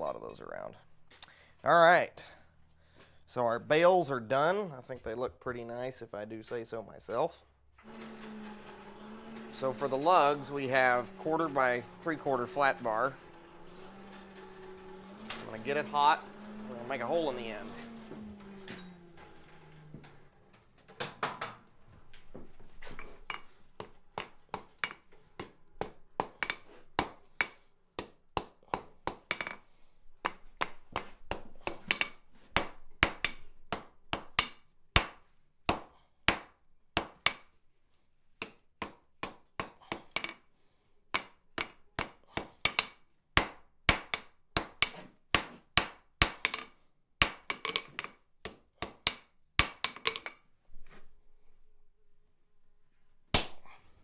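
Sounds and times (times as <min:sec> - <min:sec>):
hammer striking steel on anvil: 0:09.6 - 0:18.1, 0:23.3 - 0:29.6, 0:41.2 - 0:50.3, 0:53.4 - 0:53.8.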